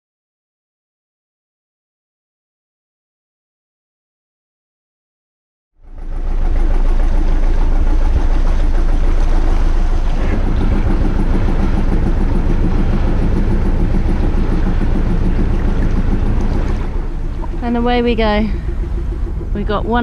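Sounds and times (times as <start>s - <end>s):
boat engine running: 5.8s - 20.0s.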